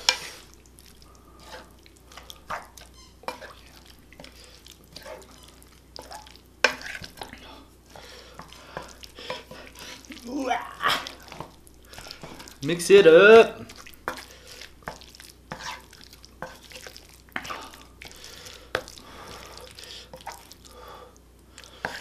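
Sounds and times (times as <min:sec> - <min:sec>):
wooden spoon scraping a pan: 0:00.0 - 0:00.5, 0:01.4 - 0:10.2, 0:11.0 - 0:20.4, 0:21.8 - 0:22.0.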